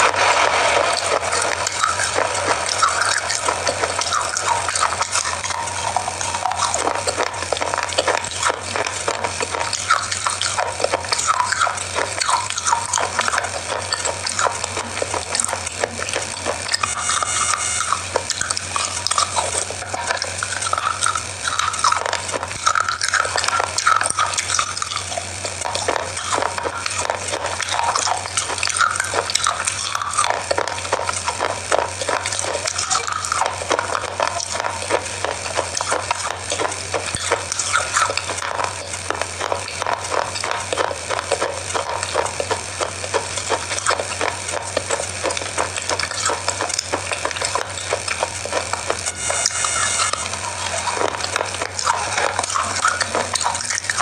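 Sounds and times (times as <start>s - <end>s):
biscuits crunching: 0.0s - 54.0s
wet mouth clicks: 0.0s - 54.0s.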